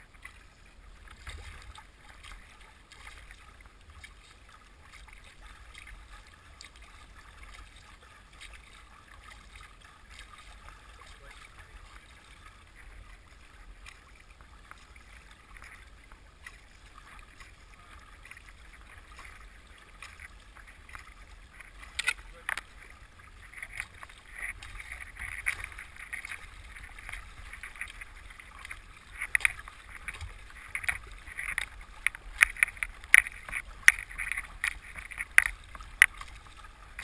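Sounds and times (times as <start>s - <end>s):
water splashing against boat bow: 0.0s - 37.0s.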